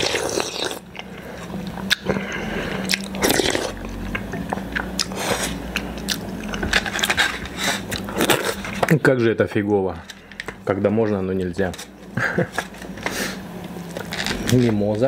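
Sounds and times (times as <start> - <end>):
chewing food: 0.0 - 8.9.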